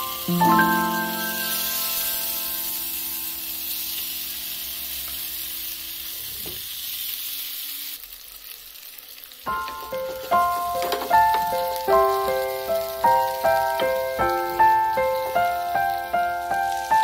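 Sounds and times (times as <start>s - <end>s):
background music: 0.0s - 3.0s
fish sizzling in hot oil: 0.0s - 17.0s.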